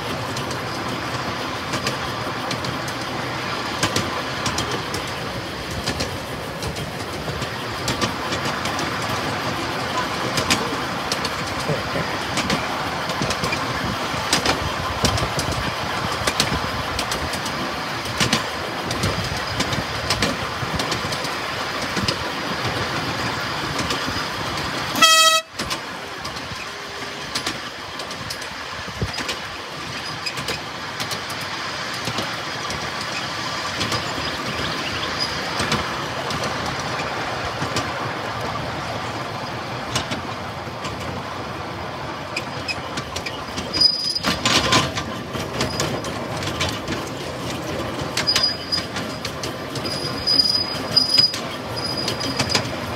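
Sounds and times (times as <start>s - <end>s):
train wheels rattling on rails: 0.0s - 52.9s
train whistle toot: 24.9s - 25.7s.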